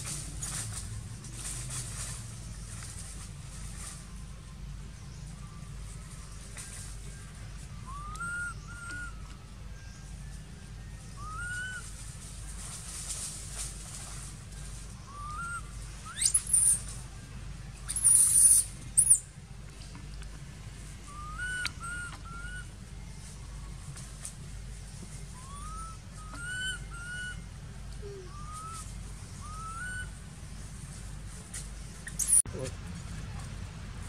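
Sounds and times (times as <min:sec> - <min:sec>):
monkey coo calls: 0:07.9 - 0:09.4, 0:11.2 - 0:11.9, 0:17.9 - 0:19.2, 0:21.1 - 0:22.7, 0:25.4 - 0:30.2, 0:32.0 - 0:32.4
monkey high-pitched squealing: 0:15.2 - 0:16.8, 0:17.9 - 0:19.2, 0:21.1 - 0:22.6, 0:25.4 - 0:27.4, 0:28.0 - 0:30.1, 0:32.0 - 0:32.4.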